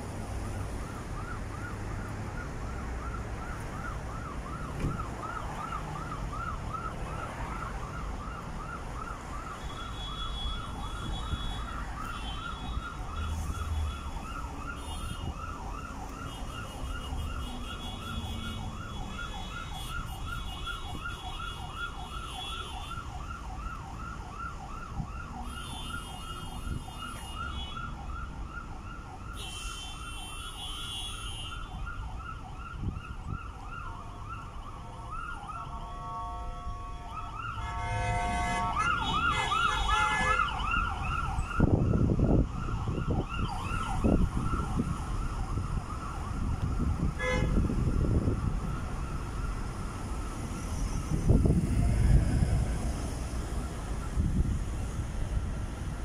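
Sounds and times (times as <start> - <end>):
low traffic rumble: 0.0 - 56.0
electronic siren yelping: 37.1 - 52.5.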